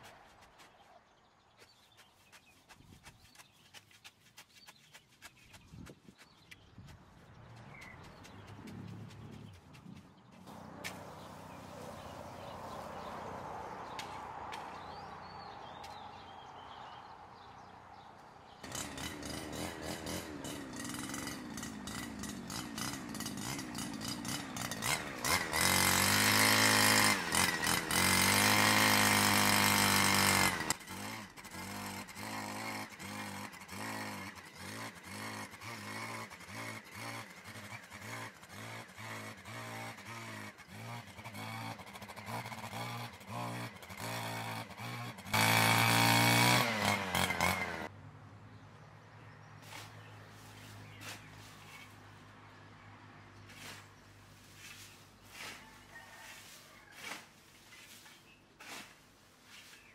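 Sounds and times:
brush cutter running: 0:10.5 - 0:13.2, 0:18.6 - 0:47.9.

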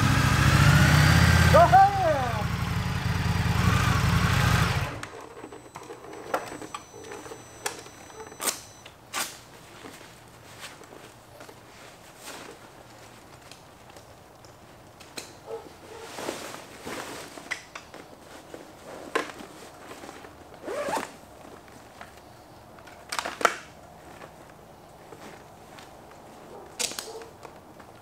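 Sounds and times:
rustling of jacket and gloves: 0:05.4 - 0:22.8, 0:23.8 - 0:28.0
jacket zipper rasping: 0:20.6 - 0:21.2.

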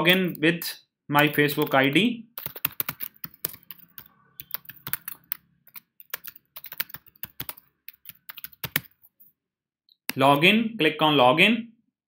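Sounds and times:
typing on keyboard: 0:00.0 - 0:00.4, 0:01.2 - 0:09.2.

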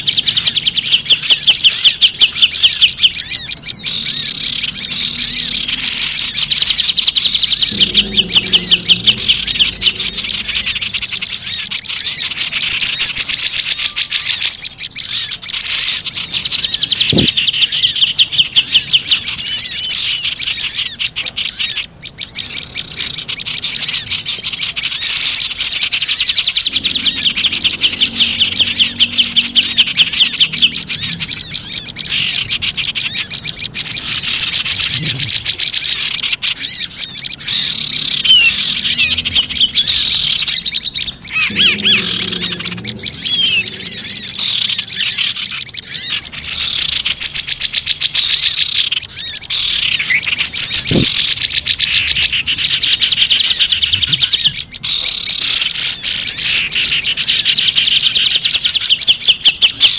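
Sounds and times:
songbirds chirping and twittering: 0:00.0 - 0:59.9.

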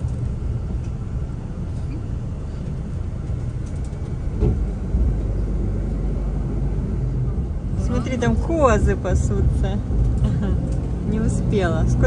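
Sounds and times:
bus engine and road rumble: 0:00.0 - 0:12.0
thump: 0:04.4 - 0:04.6.

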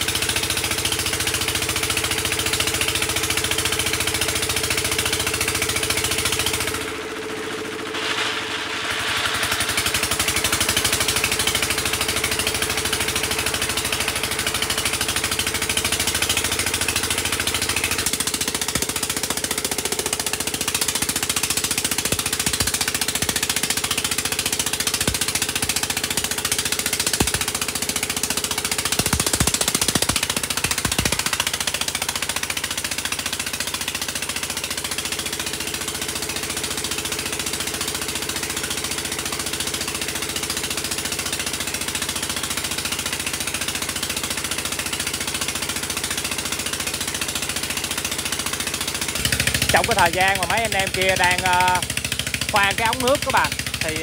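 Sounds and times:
drilling rig engine running: 0:00.0 - 0:54.0
sharp knocks: 0:24.9 - 0:27.6, 0:28.8 - 0:31.4.

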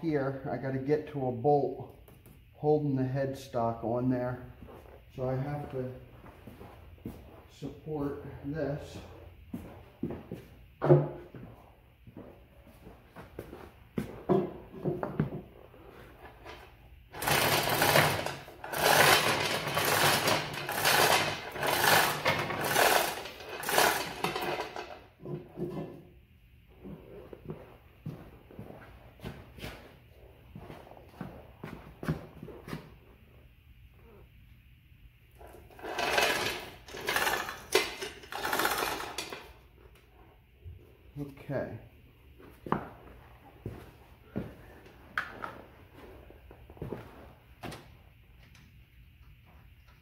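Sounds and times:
power wrench chattering: 0:17.1 - 0:25.0, 0:35.8 - 0:39.4.

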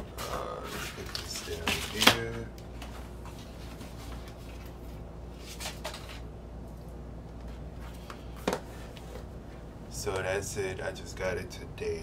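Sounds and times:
steady low hum: 0:00.0 - 0:12.0
rustles and taps handling record: 0:00.2 - 0:04.8, 0:05.4 - 0:06.3.

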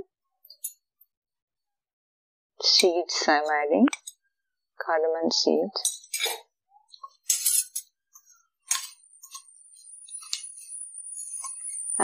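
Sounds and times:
spoon clinking and scraping pan: 0:07.1 - 0:09.5.

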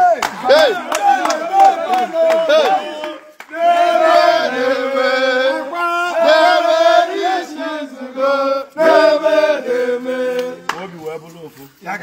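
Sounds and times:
men chanting and singing: 0:00.0 - 0:12.0.

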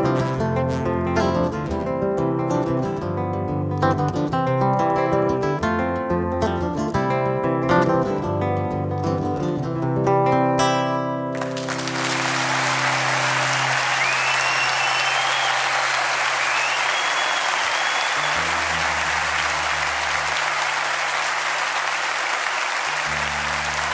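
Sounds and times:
audience applause: 0:11.4 - 0:23.9
guitar chord ringing out: 0:23.1 - 0:23.9.

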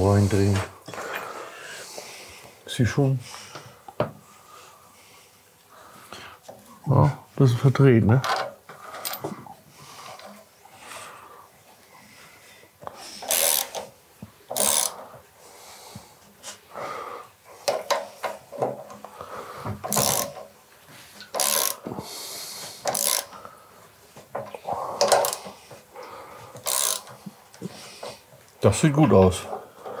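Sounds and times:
tools scraping and clicking on metal: 0:13.2 - 0:13.9, 0:14.5 - 0:15.2, 0:19.8 - 0:20.6, 0:21.2 - 0:21.8, 0:22.8 - 0:23.4, 0:24.3 - 0:25.8, 0:26.6 - 0:28.3.

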